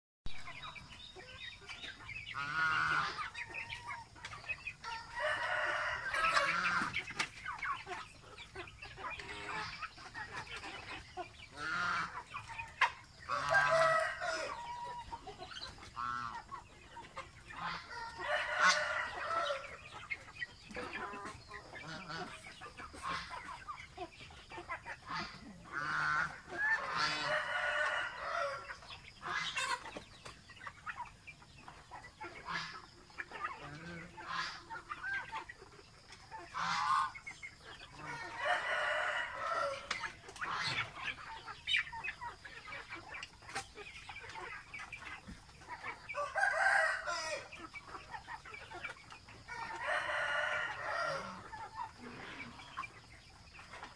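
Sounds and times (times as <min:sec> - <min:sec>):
fowl calling: 0:17.5 - 0:19.9, 0:45.9 - 0:47.5.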